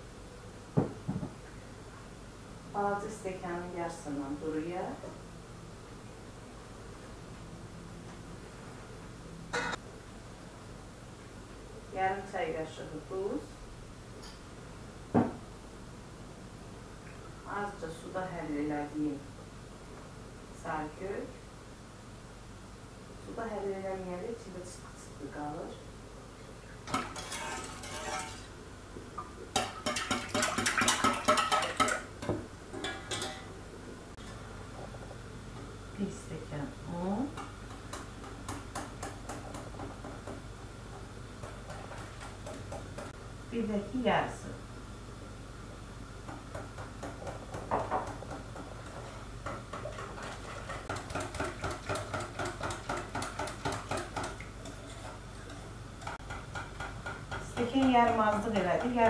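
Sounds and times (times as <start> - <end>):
whisk clicking against pot: 29.5 - 32.1, 46.5 - 59.0.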